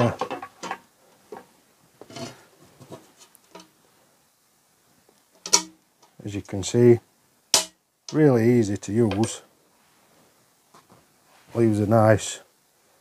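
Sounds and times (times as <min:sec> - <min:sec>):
rivet mandrel snapping: 0:05.4 - 0:05.7.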